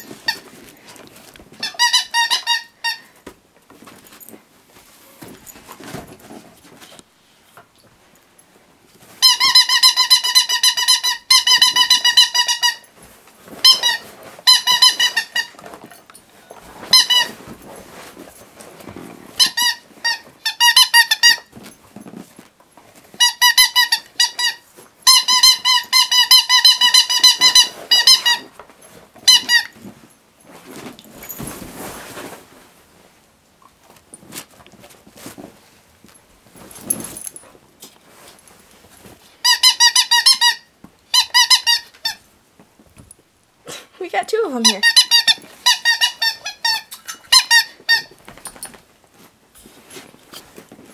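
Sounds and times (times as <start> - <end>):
squeaky toy squeaking: 1.6 - 3.1, 9.2 - 12.9, 13.6 - 15.6, 16.9 - 17.4, 19.4 - 21.5, 23.2 - 28.5, 29.2 - 29.8, 39.4 - 42.2, 44.5 - 48.1
dog chewing and rustling: 21.0 - 33.0, 33.6 - 40.4, 44.5 - 50.9.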